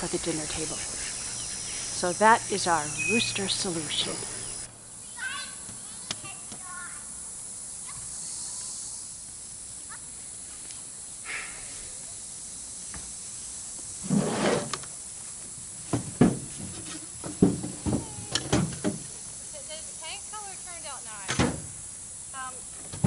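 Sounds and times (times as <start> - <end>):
outdoor hiss: 0.0 - 23.0
knocks in truck bed: 15.9 - 19.0.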